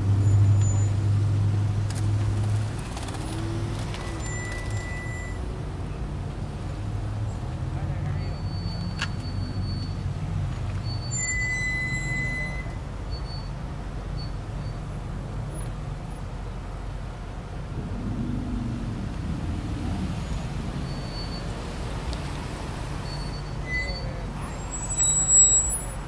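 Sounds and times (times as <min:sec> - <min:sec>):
cars idling and rolling past: 0:00.0 - 0:26.0
brief high squeal: 0:10.8 - 0:13.5, 0:23.0 - 0:26.0.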